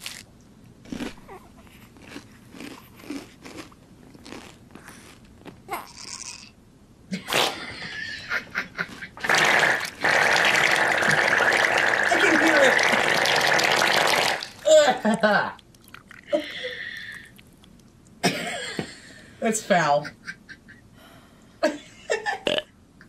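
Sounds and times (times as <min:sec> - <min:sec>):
toast being chewed: 0:00.8 - 0:05.6, 0:17.1 - 0:18.2
laughter: 0:07.1 - 0:09.2, 0:14.7 - 0:15.6, 0:19.9 - 0:20.9, 0:21.6 - 0:22.5.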